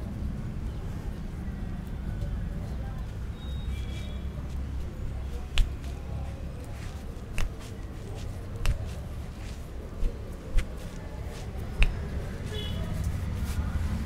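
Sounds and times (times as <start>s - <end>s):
sharp hand strikes: 5.4s - 6.1s, 6.7s - 12.8s.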